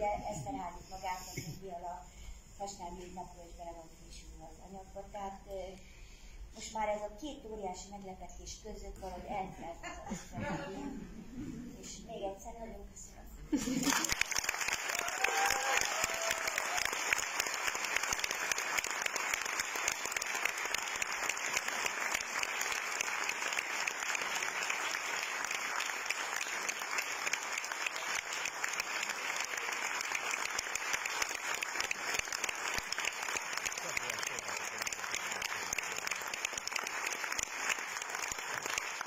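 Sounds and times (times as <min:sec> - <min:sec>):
audience applauding: 0:13.7 - 0:39.0.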